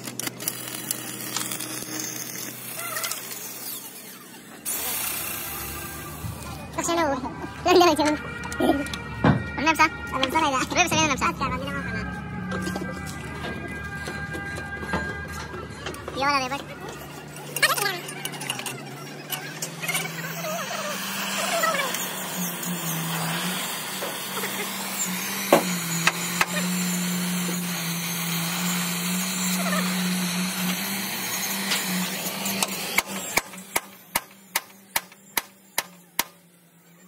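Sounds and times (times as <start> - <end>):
machine hum with hiss: 0.0 - 6.8, 19.6 - 37.0.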